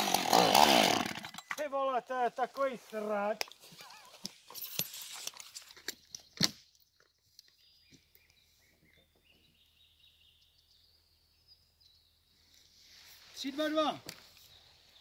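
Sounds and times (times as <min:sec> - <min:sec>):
faint birdsong: 0:05.1 - 0:15.0.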